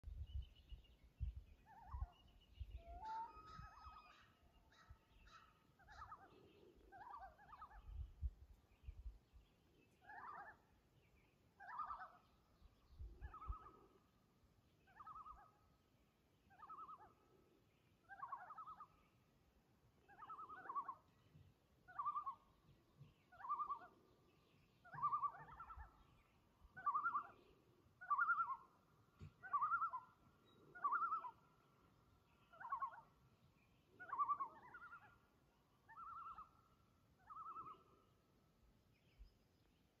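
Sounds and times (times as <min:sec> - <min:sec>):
loon calling: 0:01.6 - 0:08.0, 0:11.6 - 0:12.3, 0:18.1 - 0:19.0, 0:20.1 - 0:21.1, 0:21.9 - 0:22.4, 0:23.1 - 0:24.0, 0:24.8 - 0:31.5, 0:32.4 - 0:33.2, 0:34.0 - 0:38.0.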